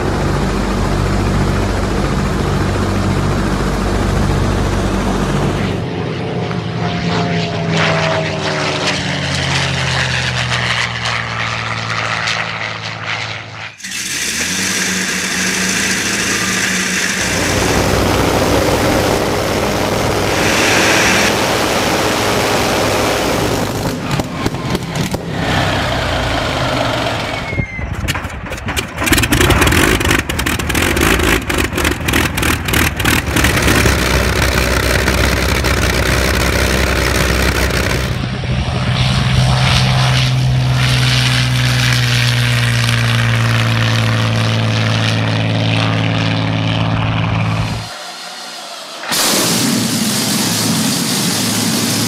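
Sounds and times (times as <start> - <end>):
aircraft engine running: 0.0 - 52.0
high-power engine drone: 0.0 - 52.0
engine exhaust beats: 13.8 - 48.0.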